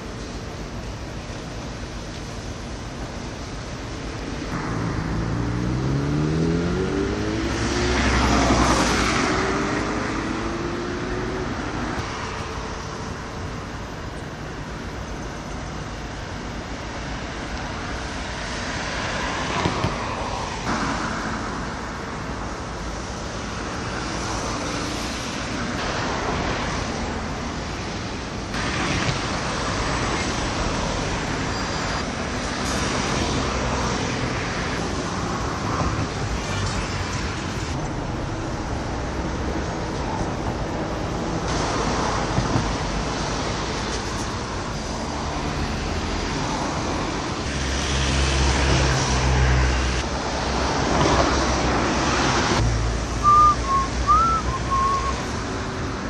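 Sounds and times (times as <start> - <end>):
road traffic hum: 0.0 - 56.0
vehicle accelerating past: 4.7 - 11.4.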